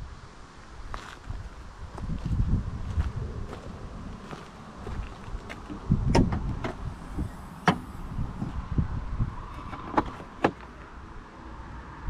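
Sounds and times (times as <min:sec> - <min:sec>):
low rumble: 0:01.4 - 0:09.7
sharp clicks and knocks: 0:07.6 - 0:07.9.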